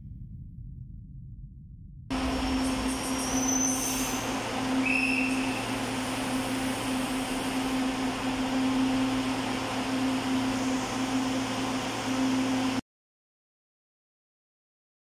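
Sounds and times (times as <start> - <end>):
electrical hum: 0.0 - 12.8
train doors opening: 2.1 - 12.5.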